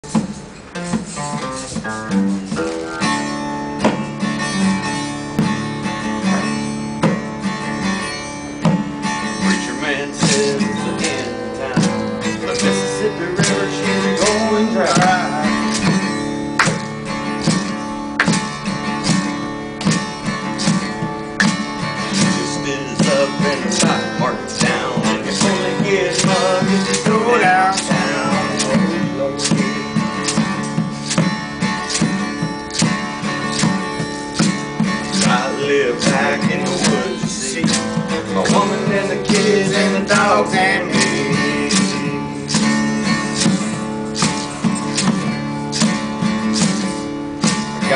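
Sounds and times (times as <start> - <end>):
acoustic guitar strumming: 0.0 - 47.9
kitchen implements struck as percussion: 23.8 - 36.2, 41.0 - 47.9.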